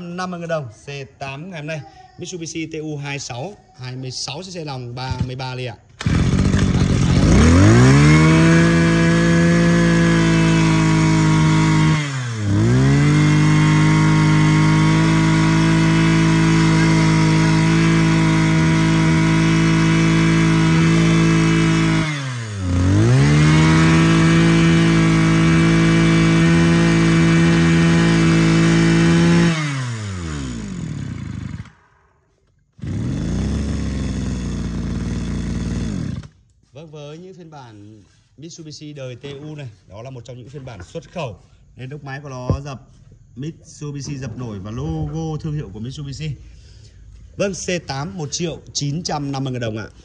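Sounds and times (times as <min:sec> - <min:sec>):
brush cutter engine running: 0:06.0 - 0:31.9, 0:32.8 - 0:36.5.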